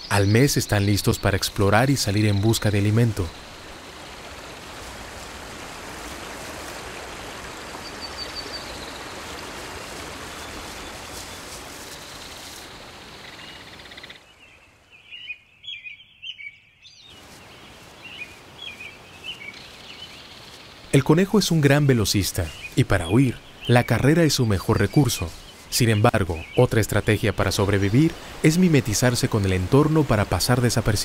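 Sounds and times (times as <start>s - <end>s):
bird chirps: 7.7s - 27.3s.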